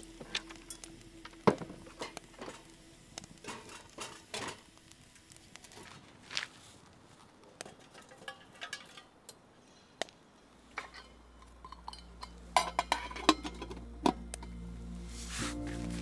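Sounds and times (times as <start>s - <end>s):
low background music: 0.0s - 5.8s, 11.2s - 16.0s
metal pot and utensils clinking: 3.4s - 4.6s, 7.6s - 9.4s, 10.7s - 14.6s.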